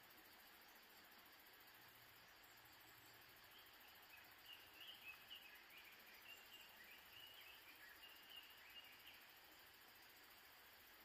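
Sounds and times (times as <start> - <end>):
background hiss: 0.0 - 11.0
bird chirping: 2.2 - 9.6.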